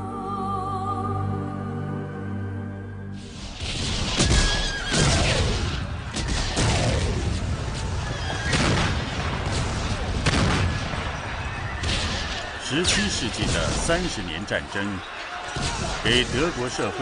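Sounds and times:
gunshots and booms: 3.6 - 14.0
horses neighing: 4.2 - 5.8.

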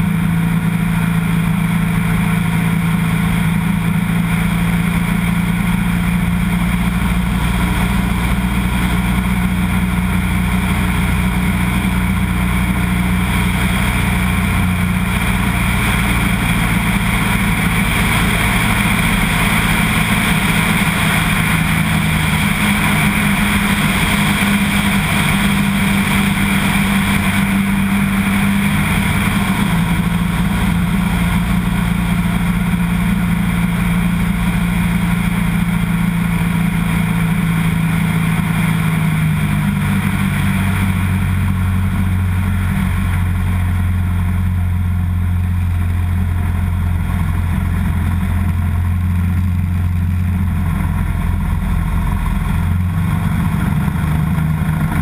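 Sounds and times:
propeller plane engine droning: 0.0 - 55.0.

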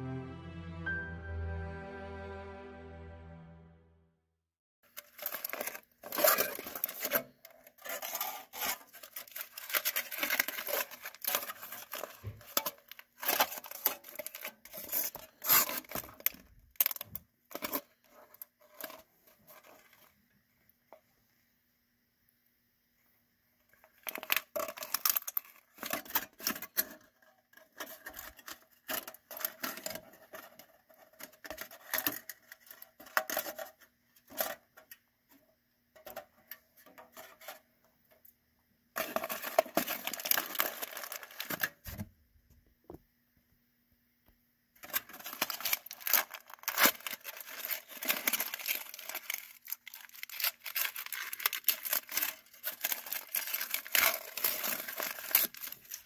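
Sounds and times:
aluminium foil crinkling: 4.8 - 20.2, 23.7 - 35.0, 39.0 - 42.0, 44.8 - 56.0.

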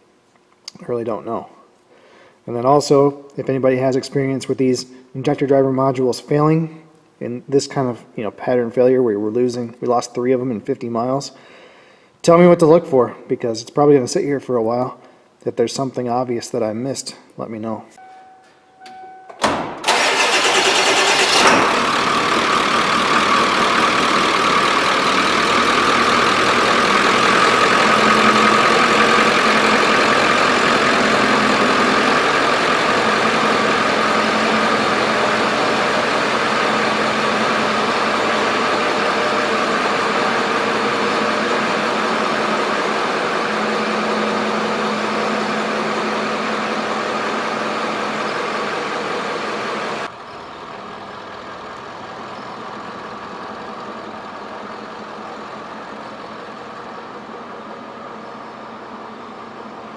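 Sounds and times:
vehicle engine running: 19.9 - 59.9.

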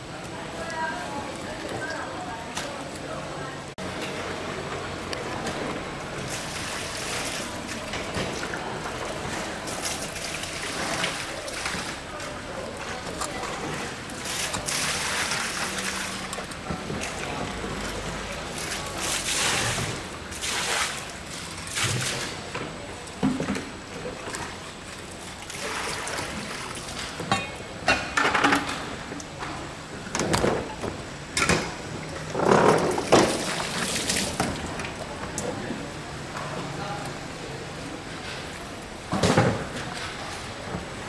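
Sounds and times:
splashing water: 3.9 - 27.7, 31.8 - 36.0.

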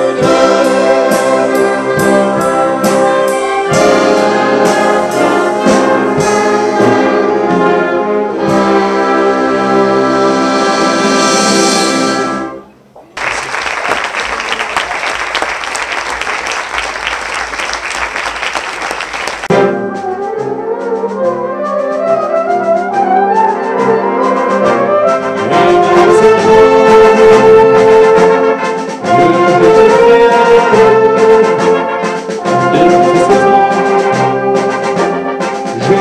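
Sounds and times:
wind band chord: 0.0 - 12.7, 23.7 - 36.0
concert band playing: 0.0 - 36.0
audience applauding: 13.1 - 19.5.

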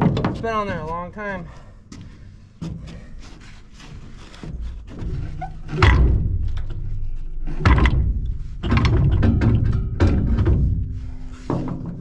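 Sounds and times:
heavy metal thunks on steel pipe: 5.7 - 6.9, 7.5 - 12.0.

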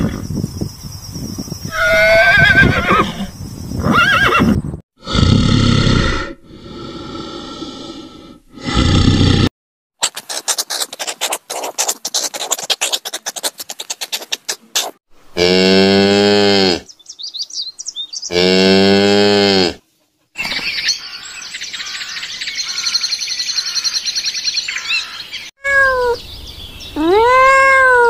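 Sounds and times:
horse whinnying: 1.7 - 4.6
bear growling: 5.0 - 9.5.

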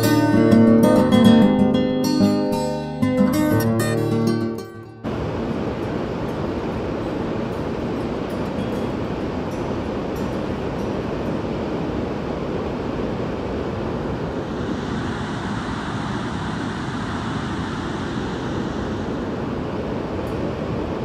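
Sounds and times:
river rushing over rocks: 3.4 - 14.5.

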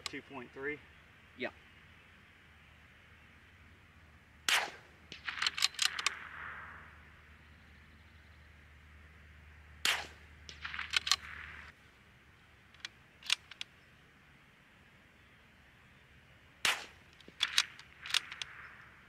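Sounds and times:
rifle shots: 4.4 - 7.2, 9.8 - 11.7, 16.6 - 19.0
metallic clicks of rifle bolt: 5.1 - 6.2, 10.5 - 11.7, 12.8 - 13.8, 16.7 - 18.7.

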